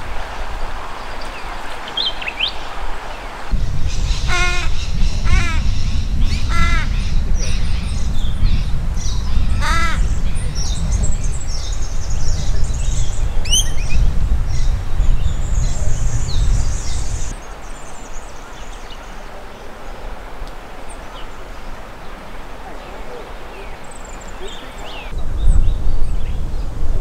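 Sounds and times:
small birds chirping: 1.0 - 19.2, 22.6 - 26.5
loud low rumbling: 3.5 - 17.4
raven cawing: 4.1 - 7.1, 9.6 - 10.1.

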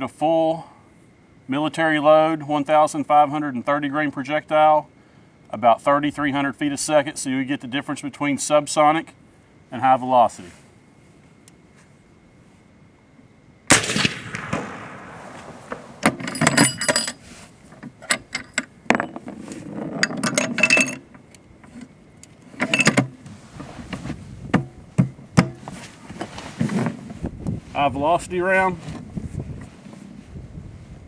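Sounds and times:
rifle shot with ringing tail: 13.7 - 16.8.

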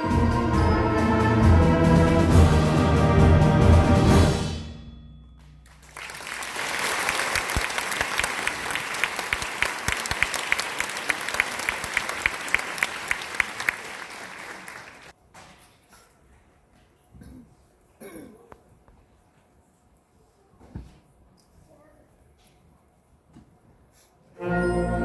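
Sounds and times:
audience applauding: 5.6 - 15.1.

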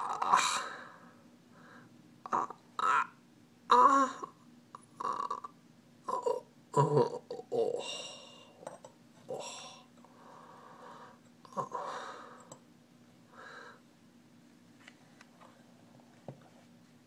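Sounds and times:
person sighing and gasping: 3.7 - 4.4, 6.9 - 8.6, 9.3 - 9.9, 11.5 - 12.5.

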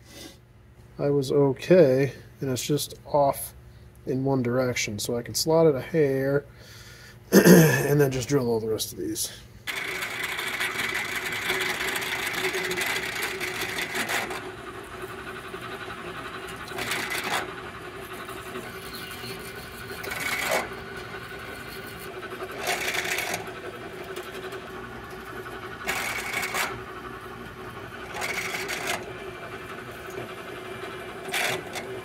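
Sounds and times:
drill press motor running: 9.6 - 32.0
drill bit cutting metal: 9.7 - 32.0.

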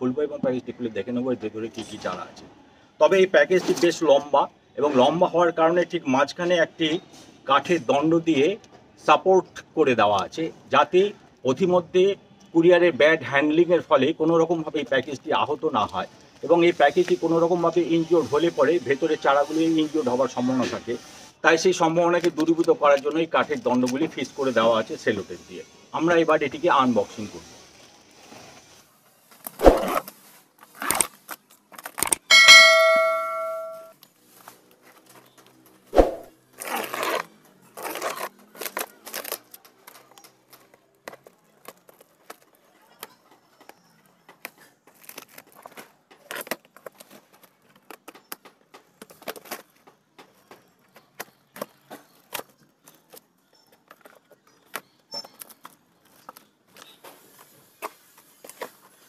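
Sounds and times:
packaging rustling and tearing: 29.4 - 32.2, 36.6 - 42.5, 44.9 - 48.2
metallic ding: 32.3 - 33.9
small crackles and clicks: 36.6 - 59.0.

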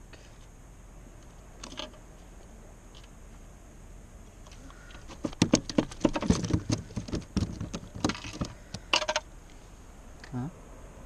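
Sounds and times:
fish flapping on plastic deck: 4.9 - 8.9.

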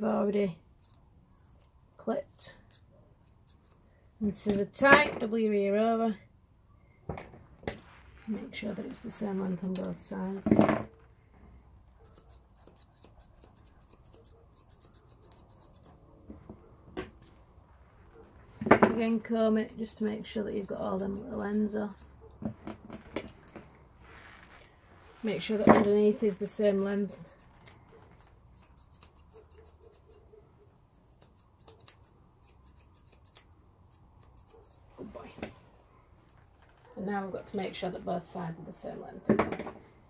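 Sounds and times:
sharp scissors click: 0.0 - 1.0, 12.0 - 15.9, 19.5 - 22.1, 26.4 - 27.8, 28.6 - 30.2, 31.1 - 34.8
scissors snipping hair: 0.0 - 1.7, 2.5 - 3.8, 9.6 - 10.2, 12.0 - 16.0, 19.1 - 22.1, 26.0 - 30.3, 31.0 - 34.8.

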